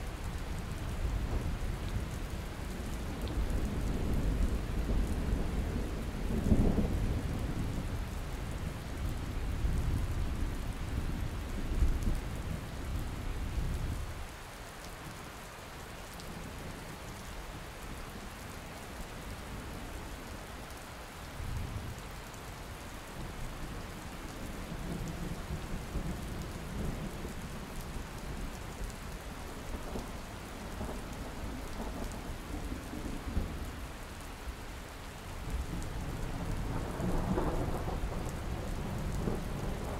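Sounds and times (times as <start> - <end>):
rain falling: 0.0 - 39.9
thunder rumbling: 35.5 - 39.9.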